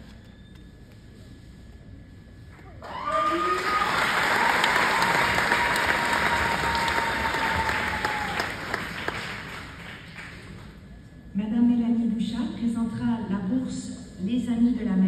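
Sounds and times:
audience applauding: 2.8 - 10.7.

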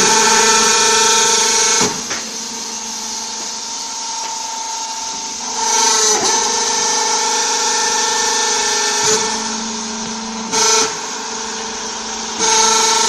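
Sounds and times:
hydraulic power unit motor hum: 0.0 - 13.0.

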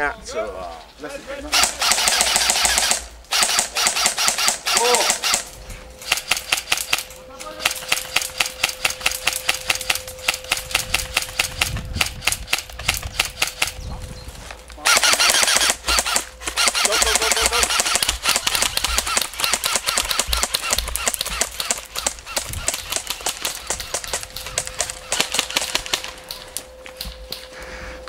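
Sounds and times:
airsoft guns firing: 1.5 - 13.8, 14.8 - 26.5.

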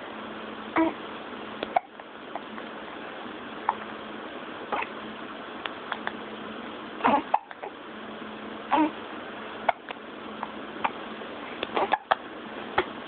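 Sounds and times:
infant hiccuping: 0.8 - 1.0, 1.6 - 2.0, 4.7 - 4.9, 7.0 - 7.8, 8.7 - 9.0, 11.6 - 12.2.

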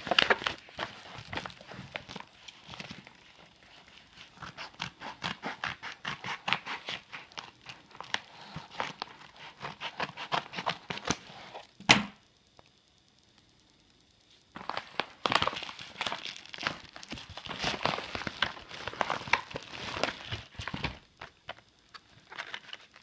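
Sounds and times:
paper crinkling: 0.0 - 11.7, 14.3 - 23.0
scissors snipping: 3.9 - 11.3.

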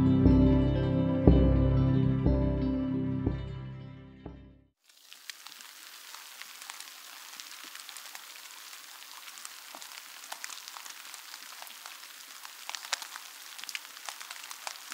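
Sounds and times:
steady rain falling: 4.8 - 14.9.

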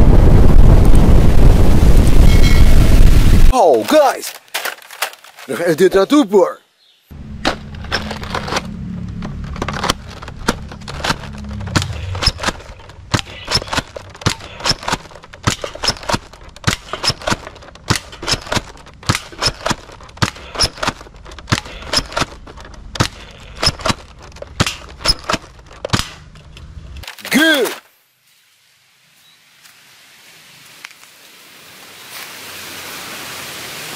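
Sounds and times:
low rumble: 7.1 - 13.3.

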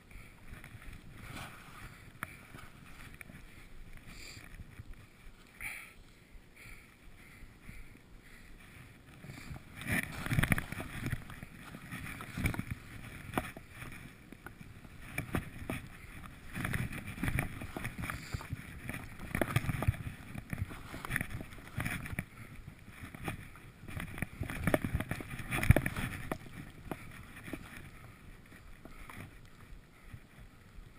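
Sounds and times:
skis rushing through powder snow: 0.6 - 5.5, 8.7 - 30.9.

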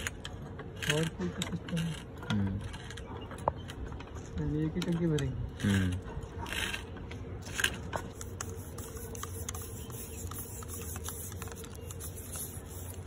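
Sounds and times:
tape scraping on threads: 5.6 - 13.0.

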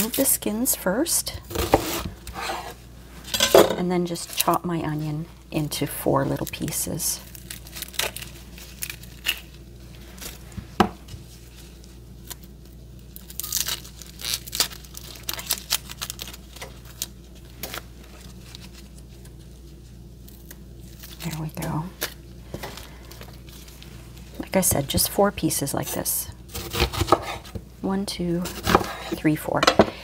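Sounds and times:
onion skin crinkling and tearing: 4.1 - 24.6.

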